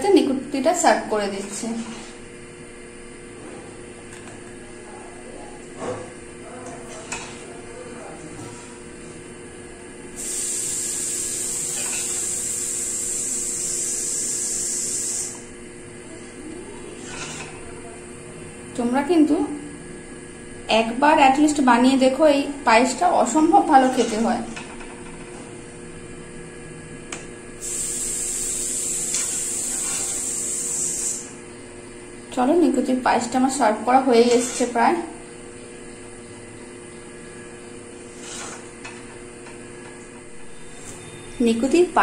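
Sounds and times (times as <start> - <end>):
high hiss: 10.2 - 15.4, 27.6 - 31.3
high-pitched hiss: 27.6 - 31.3.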